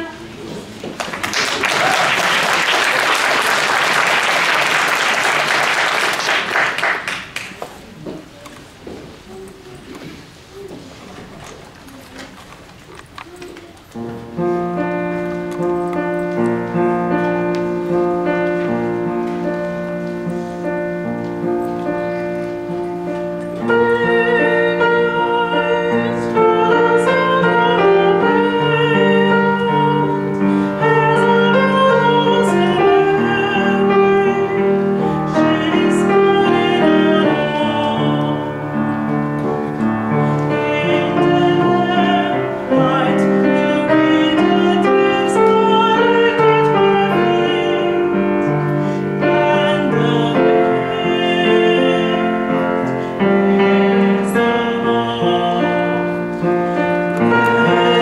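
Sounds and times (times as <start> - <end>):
grand piano: 0.0 - 58.0
choir singing: 30.8 - 39.0, 40.4 - 48.5, 57.2 - 58.0.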